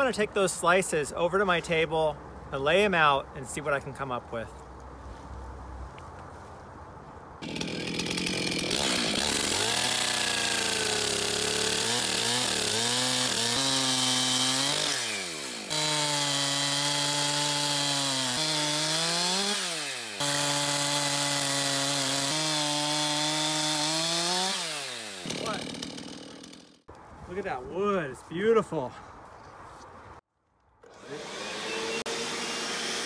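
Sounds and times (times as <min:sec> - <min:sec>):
chainsaw cutting wood: 0:07.4 - 0:26.9, 0:30.8 - 0:33.0.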